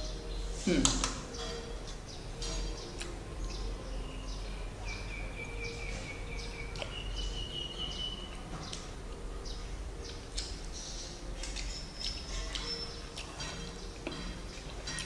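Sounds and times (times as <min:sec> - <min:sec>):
mouth eating sounds: 0:05.8 - 0:09.2.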